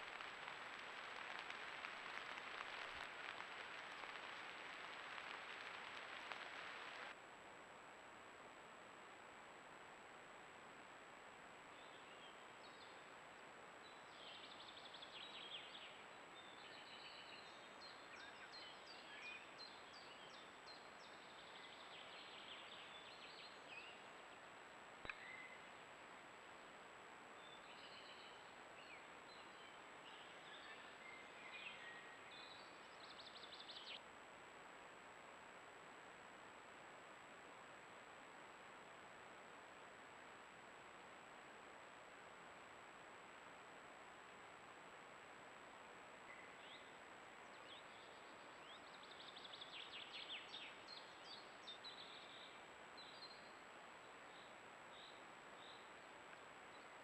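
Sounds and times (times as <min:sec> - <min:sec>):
faint birdsong: 0:00.0 - 0:07.2, 0:11.6 - 0:34.1, 0:45.2 - 0:57.0
microphone hiss and whine: 0:00.0 - 0:57.0
songbird chirps and whistles: 0:25.1 - 0:25.7.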